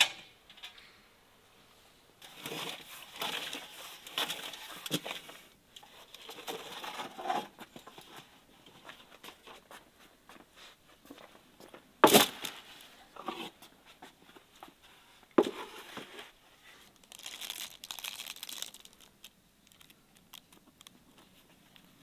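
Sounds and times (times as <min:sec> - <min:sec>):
scrapes clicks and rustles: 0:02.2 - 0:14.8.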